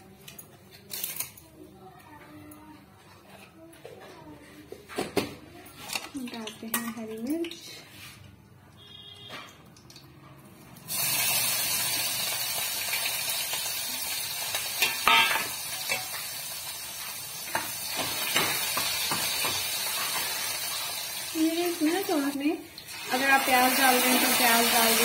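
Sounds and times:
chillies sizzling in hot oil: 0:10.7 - 0:25.0.

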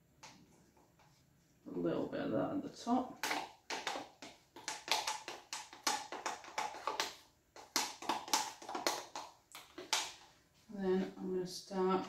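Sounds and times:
stick tapping a plastic cup: 0:03.2 - 0:10.2.

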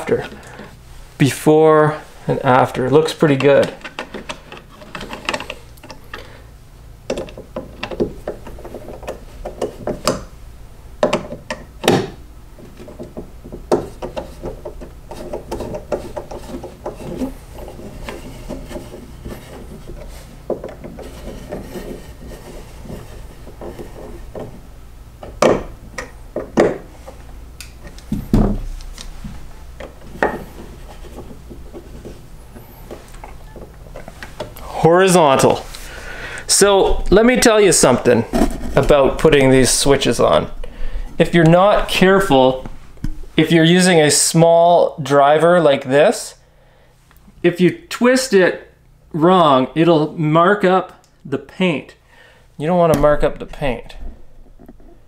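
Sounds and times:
clicks and knocks of handling: 0:03.1 - 0:06.3, 0:07.1 - 0:10.3, 0:11.0 - 0:24.6, 0:25.2 - 0:34.6.

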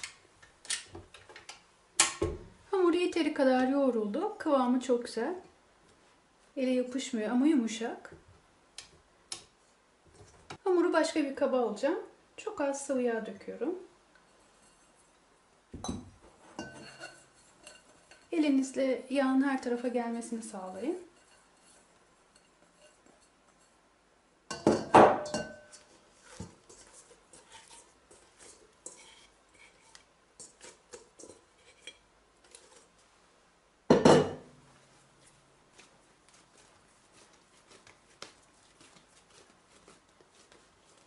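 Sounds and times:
hands handling dough: 0:25.7 - 0:33.2, 0:34.6 - 0:41.0.

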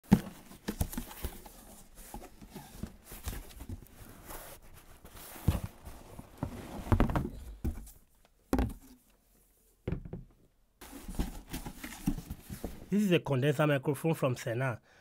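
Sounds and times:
cardboard flaps rustling: 0:00.0 - 0:09.0, 0:10.8 - 0:12.9
knocks and thuds in box: 0:00.1 - 0:01.4, 0:06.4 - 0:09.0.

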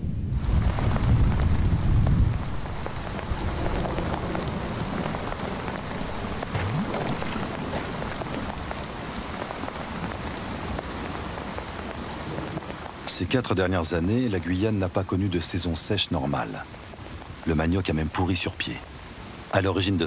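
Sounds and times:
low rumble of thunder: 0:00.0 - 0:10.8
heavy rain falling on leaves: 0:00.0 - 0:20.0.

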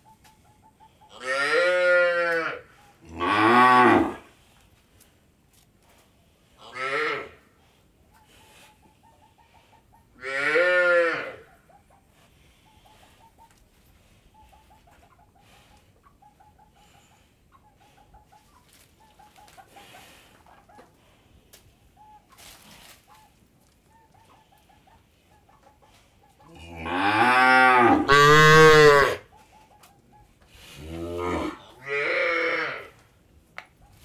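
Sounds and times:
cow mooing loudly: 0:01.3 - 0:04.2, 0:10.2 - 0:11.3, 0:26.6 - 0:29.2, 0:30.8 - 0:32.9.

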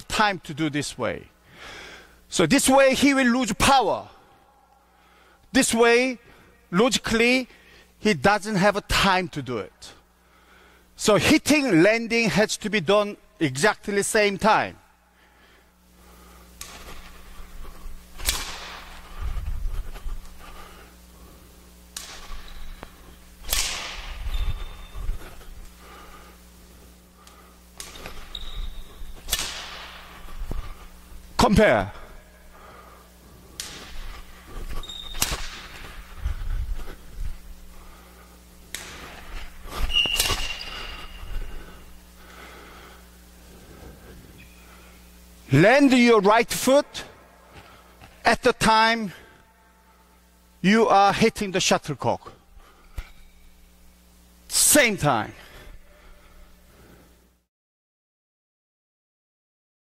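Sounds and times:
sharp crack: 0:18.2 - 0:18.9, 0:23.4 - 0:24.2, 0:29.3 - 0:30.0, 0:35.2 - 0:35.9, 0:38.7 - 0:39.2
sneaker squealing on court floor: 0:24.2 - 0:25.0, 0:28.0 - 0:29.2, 0:34.7 - 0:35.7, 0:39.7 - 0:41.4.

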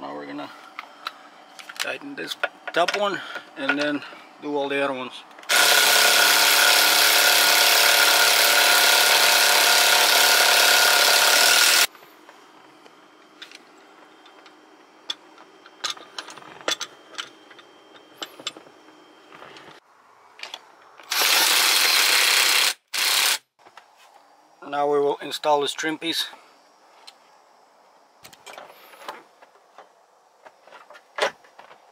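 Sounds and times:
air wrench running: 0:05.4 - 0:11.9, 0:21.0 - 0:23.4.

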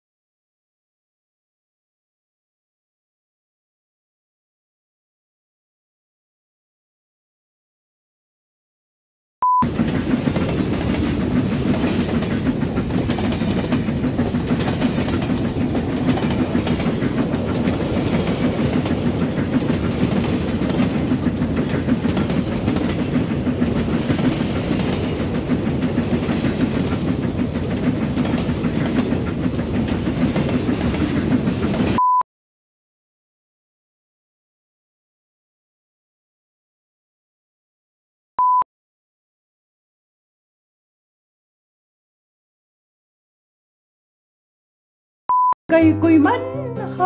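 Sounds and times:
short high beep: 0:09.4 - 0:09.7, 0:32.0 - 0:32.2, 0:38.4 - 0:38.6, 0:45.3 - 0:45.6
loud rumbling and rattling: 0:09.6 - 0:32.0.

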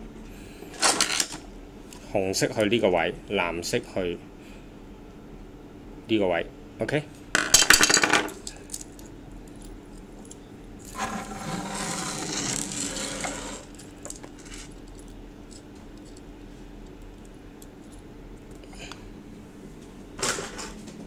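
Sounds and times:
faint steady hum: 0:00.0 - 0:21.0
rustling and jangling metal: 0:13.6 - 0:16.3.

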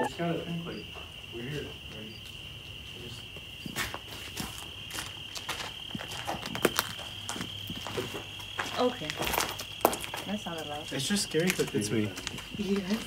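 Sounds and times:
crickets trilling: 0:00.0 - 0:13.0
footsteps on gritty floor: 0:03.3 - 0:13.0.

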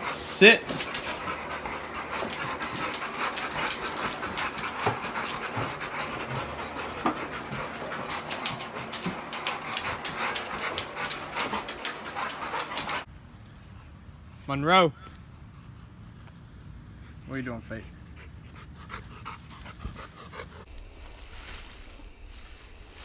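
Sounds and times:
dogs panting: 0:00.0 - 0:13.9, 0:16.9 - 0:20.7.

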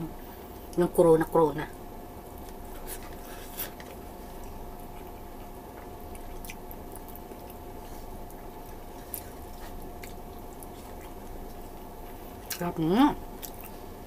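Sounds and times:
steady background hum: 0:00.0 - 0:14.0
wet chewing: 0:02.3 - 0:14.0
fingers squishing sticky food: 0:02.4 - 0:12.7.

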